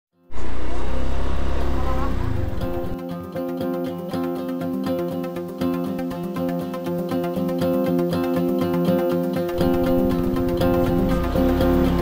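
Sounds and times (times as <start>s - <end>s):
scooter engine running: 0.4s - 3.0s, 9.5s - 12.0s.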